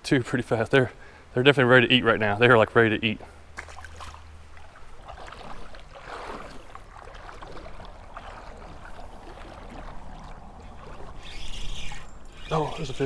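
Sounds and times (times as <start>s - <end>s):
creek water running and lapping: 3.1s - 13.0s.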